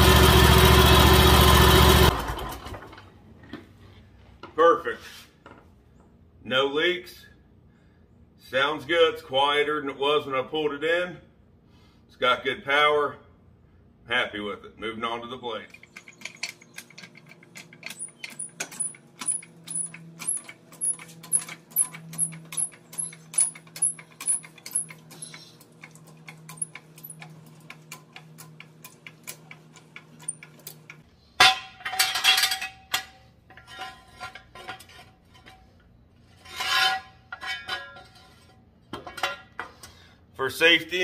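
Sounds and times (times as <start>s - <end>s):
metal scraping and clanking: 15.7s - 27.6s, 30.1s - 40.0s.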